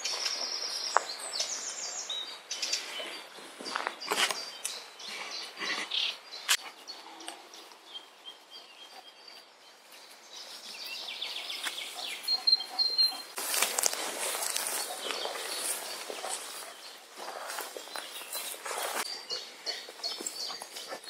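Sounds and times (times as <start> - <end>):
small birds chirping: 0.0 - 21.0
footsteps through tall grass: 6.6 - 19.2
bird trill: 10.8 - 13.4.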